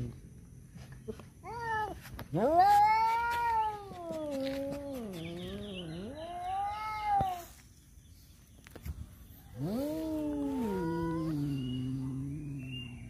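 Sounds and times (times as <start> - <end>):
cats yowling: 1.5 - 7.6, 9.5 - 12.9.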